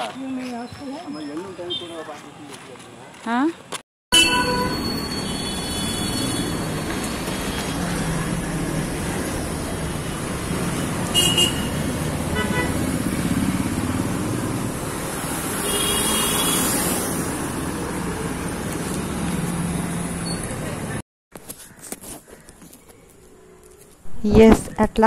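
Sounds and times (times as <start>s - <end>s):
horn toots: 4.1s - 8.0s, 11.0s - 12.9s, 15.5s - 17.1s
motorcycles and scooters passing: 4.8s - 21.0s.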